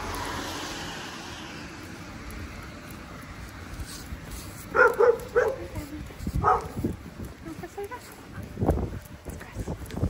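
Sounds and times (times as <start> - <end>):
vehicle passing on wet road: 0.0 - 7.3.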